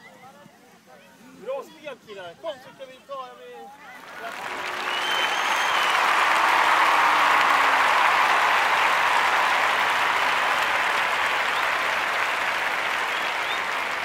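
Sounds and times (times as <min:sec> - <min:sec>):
group clapping: 0:03.9 - 0:14.0
people cheering: 0:03.9 - 0:14.0.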